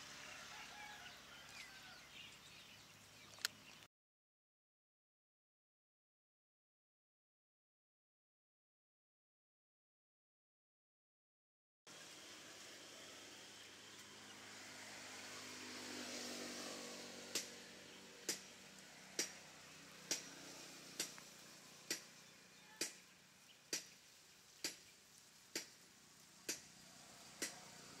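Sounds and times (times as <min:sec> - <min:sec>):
faint hiss: 0:11.9 - 0:28.0.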